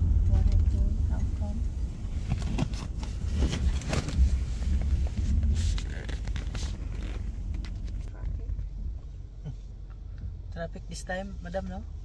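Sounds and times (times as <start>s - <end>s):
car engine and road noise: 0.0s - 12.0s
clicks and rustles: 2.2s - 8.7s.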